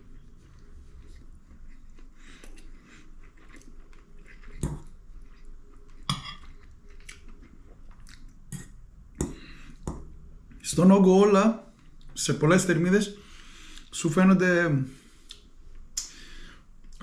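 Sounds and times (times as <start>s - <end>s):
quiet chewing: 0.0s - 9.9s.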